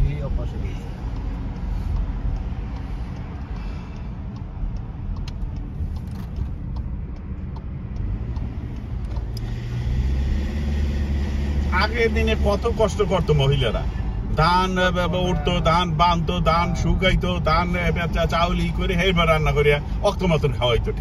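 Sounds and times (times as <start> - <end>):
tyre and engine rumble: 0.0 - 21.0
faint clicks: 0.4 - 9.7.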